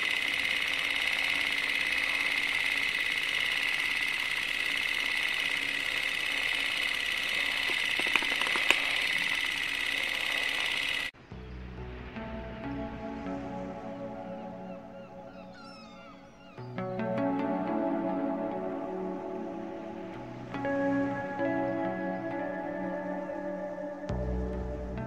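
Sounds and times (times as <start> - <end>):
sharp clicks: 0.0 - 11.1
film projector clatter and whir: 0.0 - 11.2.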